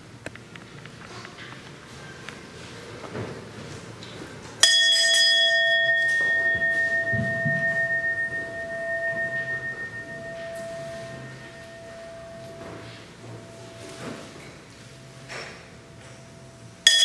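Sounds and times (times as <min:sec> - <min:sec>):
brass hand bell ringing: 0:04.6 - 0:14.0.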